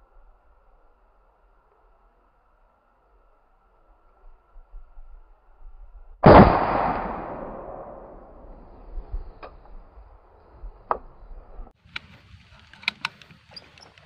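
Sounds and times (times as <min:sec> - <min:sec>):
loud gunshot: 0:06.2 - 0:08.6
faint clicks: 0:11.8 - 0:14.0.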